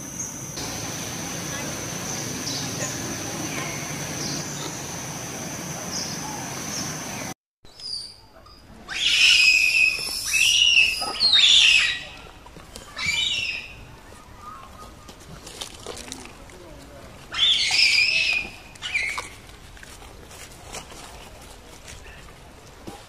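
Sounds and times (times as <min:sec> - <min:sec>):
high hiss with thin whine: 0:00.0 - 0:07.3
monkey screaming: 0:08.9 - 0:12.2, 0:17.3 - 0:19.3.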